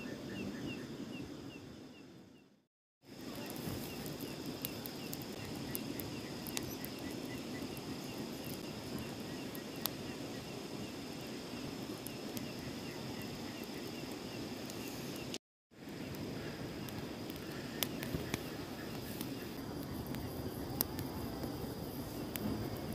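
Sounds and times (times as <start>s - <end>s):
campfire crackling and popping: 3.0s - 22.9s
insects trilling and chirping: 3.0s - 22.9s.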